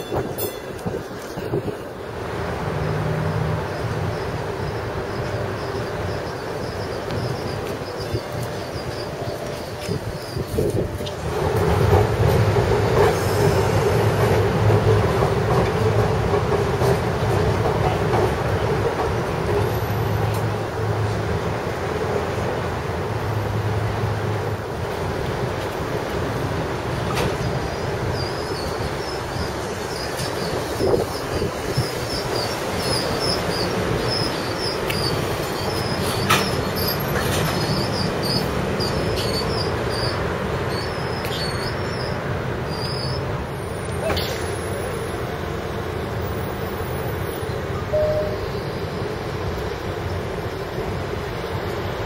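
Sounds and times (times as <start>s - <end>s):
streetcar moving along rails: 0.0s - 52.0s
short high chirps: 47.9s - 48.7s.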